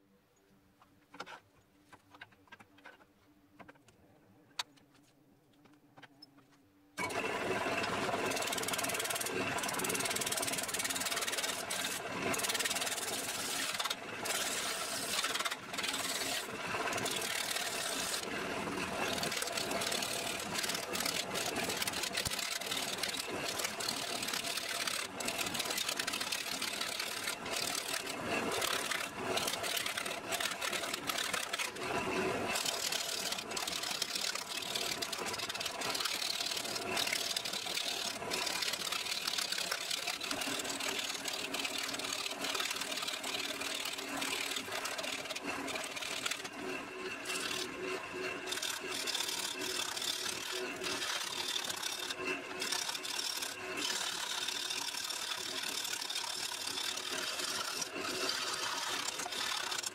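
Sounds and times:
gouge cutting wood on lathe: 7.0 - 59.9
lathe motor hum: 7.0 - 59.9.

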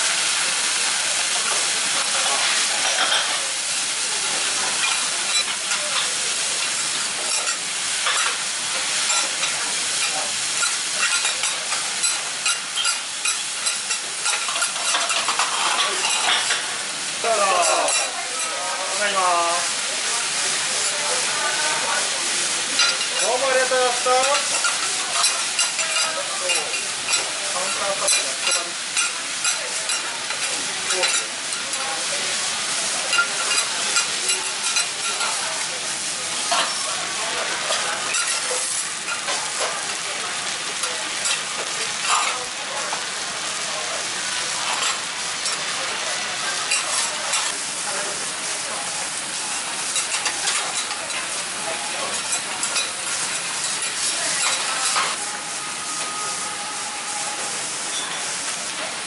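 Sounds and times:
food sizzling on a griddle: 0.0 - 59.0
metal spatulas scraping and clicking: 52.1 - 55.2.

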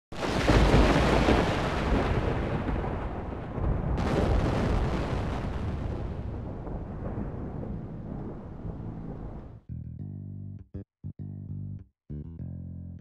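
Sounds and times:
deep cinematic boom: 3.6 - 10.6.

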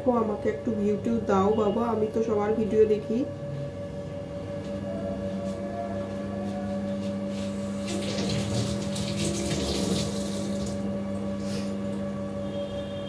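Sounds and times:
steady low hum: 0.0 - 13.0
tap water running into sink: 7.8 - 10.8.

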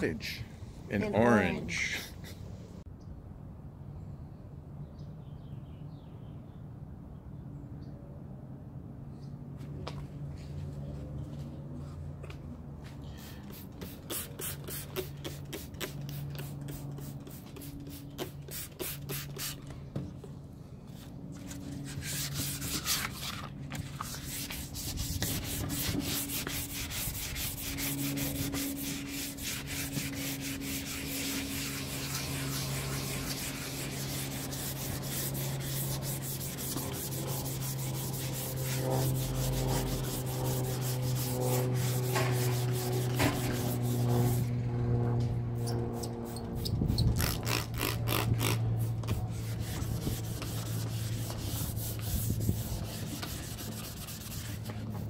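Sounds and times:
sandpaper rubbing on wood: 13.2 - 19.6, 21.4 - 44.5, 45.9 - 55.0.

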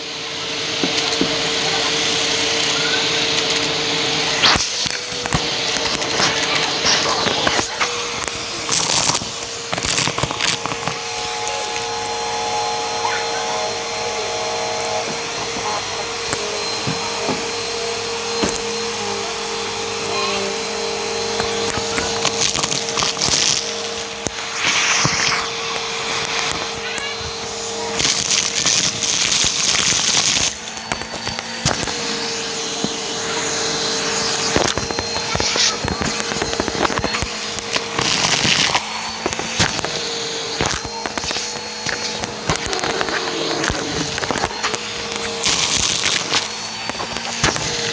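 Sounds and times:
vacuum cleaner motor whine: 0.0 - 47.9
small bits crackling up a hose: 4.4 - 11.8, 21.4 - 27.2, 27.9 - 31.9, 34.3 - 39.9, 40.6 - 47.7.

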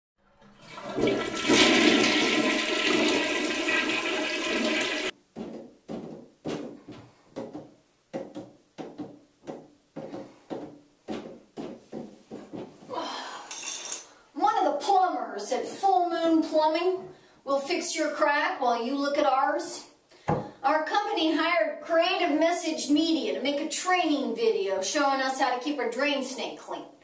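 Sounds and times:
toilet flushing: 0.3 - 5.1
metal tools clanking on pipes: 13.5 - 14.2.

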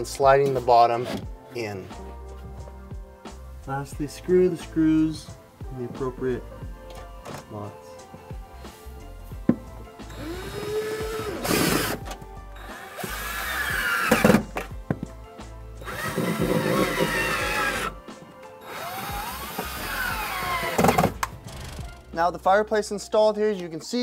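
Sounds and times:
cordless drill driving screws: 10.1 - 14.7, 15.8 - 18.0, 18.6 - 21.8.

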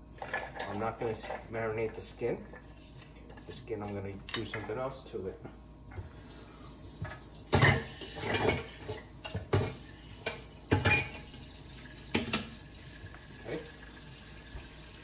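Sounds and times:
tap water running: 6.0 - 15.0
dishes clattering in metal sink: 7.0 - 12.6.

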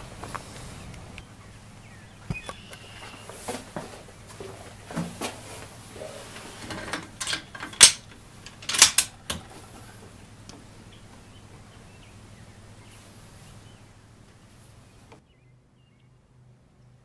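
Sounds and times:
faint steady hum: 0.0 - 17.0
rifle bolt clicks and clacks: 6.8 - 9.4.

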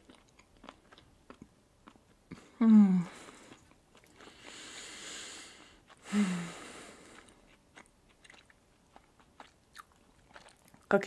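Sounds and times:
woman humming: 2.6 - 3.2
breath out through nose: 4.2 - 7.2.

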